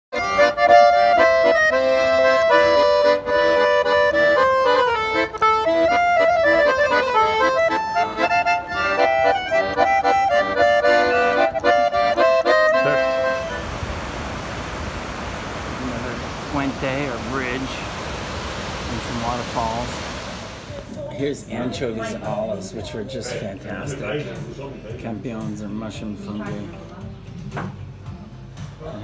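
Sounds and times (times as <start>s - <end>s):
accordion tune: 0.1s - 21.0s
steady hiss: 12.8s - 21.0s.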